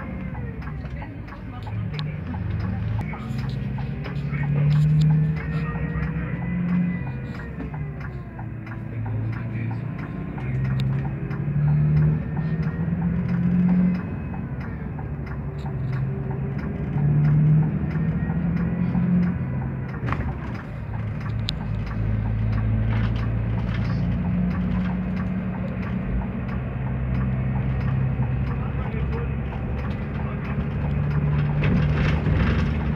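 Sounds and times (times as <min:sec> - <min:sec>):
diesel engine humming: 0:00.0 - 0:32.9
road noise: 0:00.0 - 0:32.9
cab rattles: 0:28.5 - 0:32.9.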